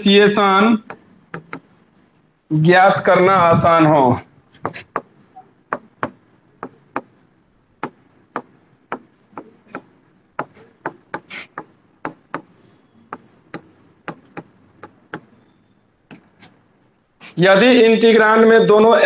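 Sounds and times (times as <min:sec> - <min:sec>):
chalk tapping and scratching: 0:00.8 - 0:02.1, 0:04.5 - 0:07.2, 0:07.8 - 0:15.4, 0:16.1 - 0:16.6, 0:17.2 - 0:17.4.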